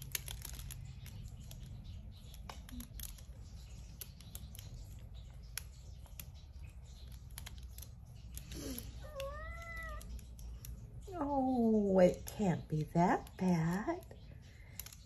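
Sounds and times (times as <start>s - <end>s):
light clicks and taps: 0.0s - 15.0s
cat meowing: 8.6s - 10.2s.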